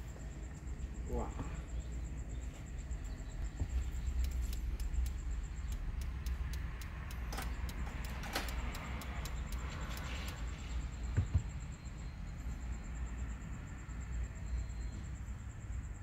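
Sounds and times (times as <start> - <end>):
rotary controller clicking: 3.4 - 10.6
car engine idling: 3.4 - 11.1.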